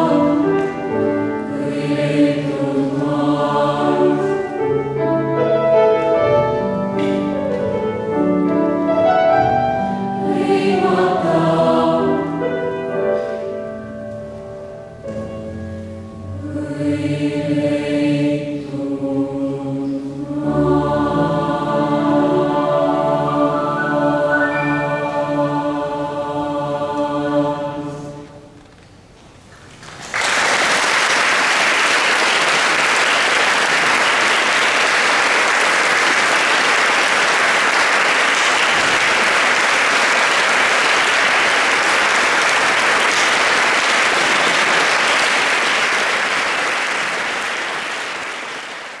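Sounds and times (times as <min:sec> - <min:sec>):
choir holding a chord: 0:00.0 - 0:13.6, 0:15.8 - 0:28.6
audience applause: 0:29.8 - 0:49.0.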